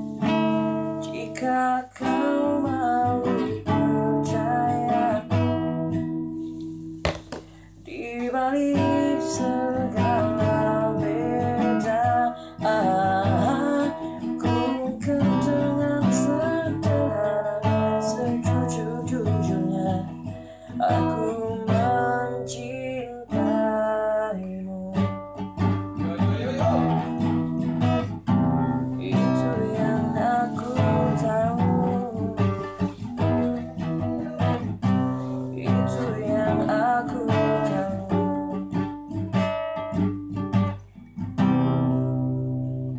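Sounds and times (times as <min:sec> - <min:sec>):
classical guitar strumming and picking: 0:00.0 - 0:42.9
man singing: 0:01.0 - 0:05.4, 0:07.9 - 0:25.2, 0:26.2 - 0:27.2, 0:28.6 - 0:34.7, 0:35.4 - 0:38.6.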